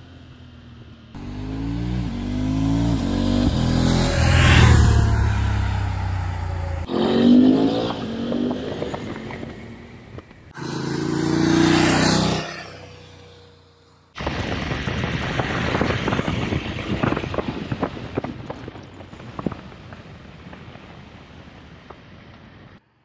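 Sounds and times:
motorcycle engine running onboard: 0.0s - 14.0s
motorcycle riding past: 0.6s - 9.9s, 10.5s - 14.1s
wind noise buffeting: 14.2s - 22.8s.

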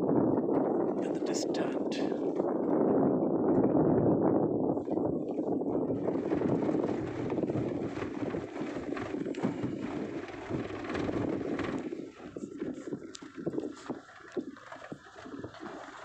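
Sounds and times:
wind buffeting microphone: 0.0s - 16.0s
vehicle on dirt track: 5.5s - 16.0s
knocks over bumps: 6.0s - 12.8s.

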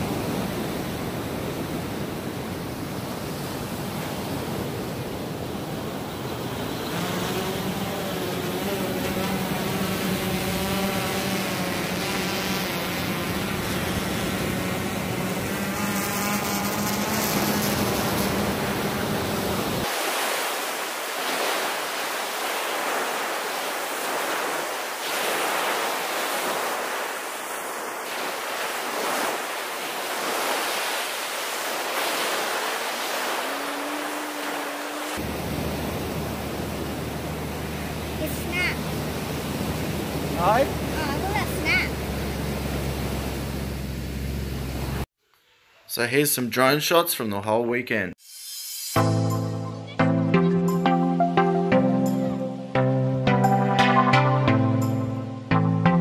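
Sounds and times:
waves crashing on beach: 0.0s - 45.1s
drone propellers humming: 5.8s - 19.9s, 31.7s - 45.0s.

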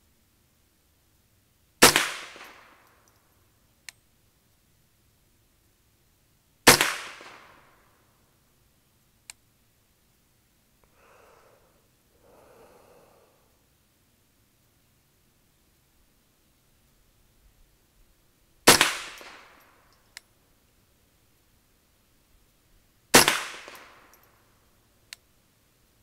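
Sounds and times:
rifle shots: 1.8s - 2.8s, 6.7s - 7.7s, 18.7s - 19.6s, 23.1s - 24.1s
faint click: 3.8s - 4.0s, 9.2s - 9.4s, 25.1s - 25.3s.

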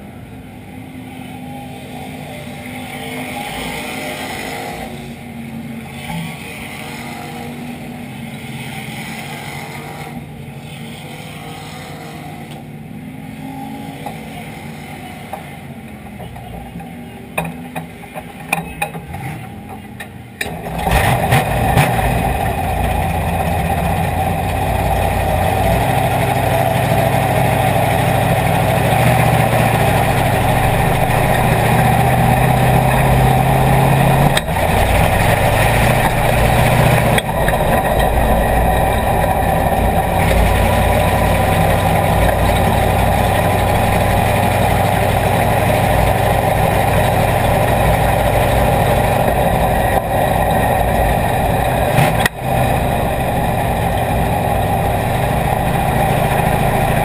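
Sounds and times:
race car engine idling: 20.4s - 57.0s.

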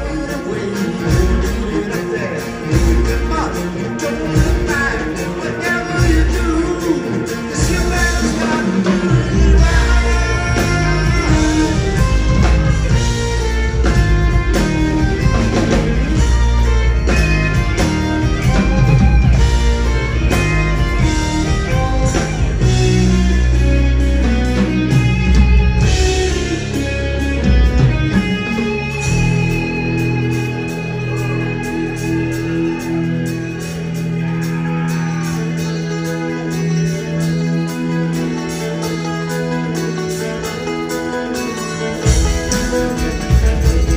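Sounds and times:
drums: 0.0s - 43.9s
electric guitar: 0.0s - 43.9s
bass line: 2.6s - 37.4s.

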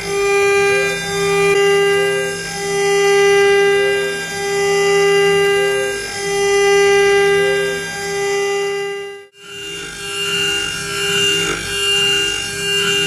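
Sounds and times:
router spindle whining: 0.0s - 13.0s
cutter milling metal: 9.4s - 13.0s.

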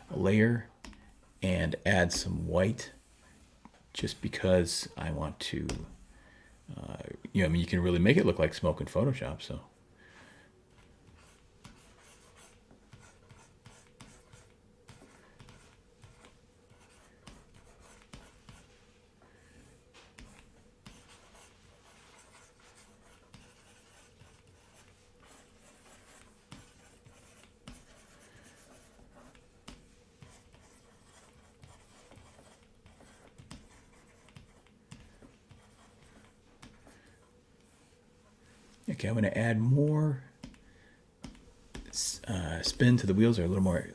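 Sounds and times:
faint steady hum: 0.0s - 43.9s
stylus scratching on drawing tablet: 10.7s - 19.0s, 19.8s - 38.4s.

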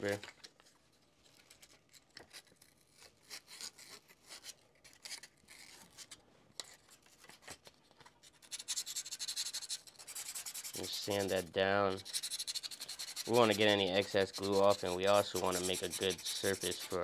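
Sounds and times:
sandpaper scratching: 8.3s - 17.0s.

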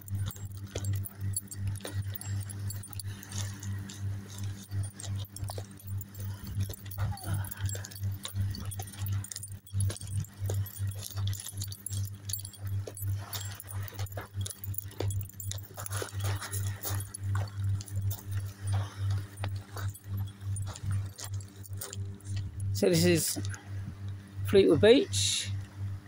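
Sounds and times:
footsteps crunching on pebbles: 0.0s - 23.6s
low throbbing hum: 0.0s - 26.0s.

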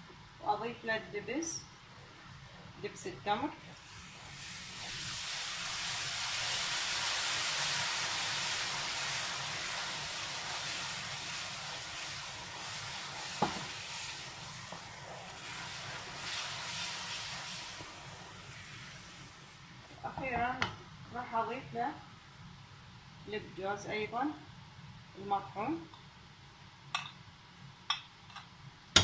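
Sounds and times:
mixture sizzling in a pan: 1.9s - 20.2s.

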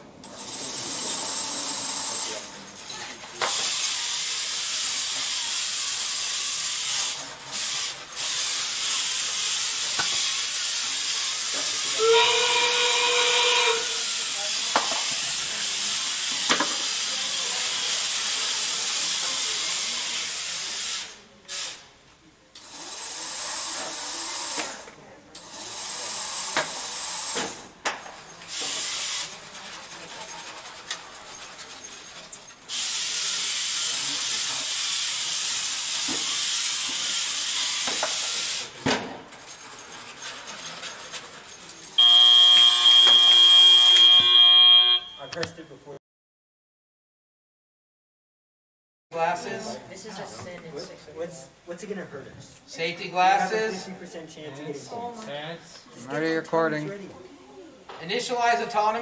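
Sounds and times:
robot motors whirring: 0.3s - 12.0s, 28.5s - 38.8s
short steady tone: 42.0s - 45.3s.

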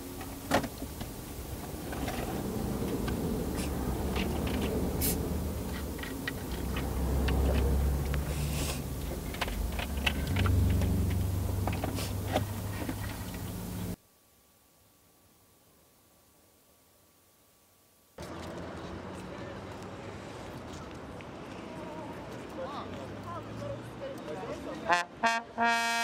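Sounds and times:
low engine hum in car: 0.0s - 14.0s.

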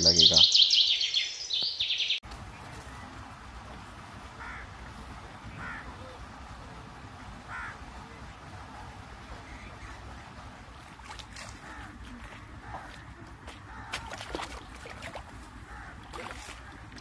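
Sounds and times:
bird calls: 0.0s - 3.2s, 7.5s - 17.0s.

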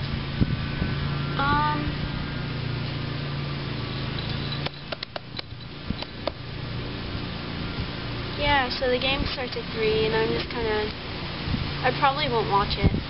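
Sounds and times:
low steady hum: 0.0s - 13.0s
wind buffeting microphone: 0.0s - 13.0s
sharp clicks and snaps: 4.6s - 6.4s.

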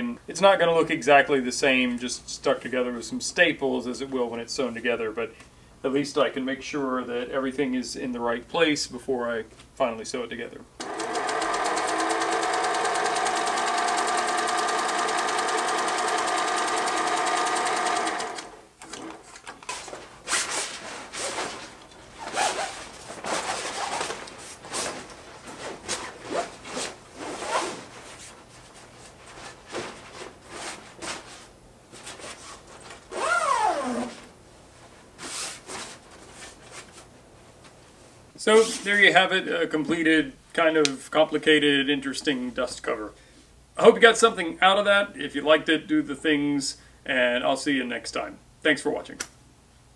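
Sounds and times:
sewing machine stitching: 10.8s - 19.5s
fabric cover rustling: 19.7s - 38.9s.

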